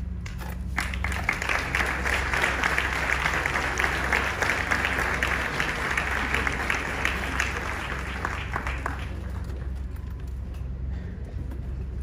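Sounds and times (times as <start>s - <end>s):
audience applauding: 0.8s - 9.7s.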